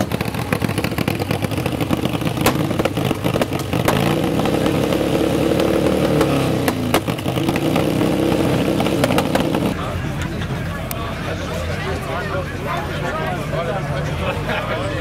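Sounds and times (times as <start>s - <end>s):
motorcycle engine revving and idling: 0.0s - 9.9s.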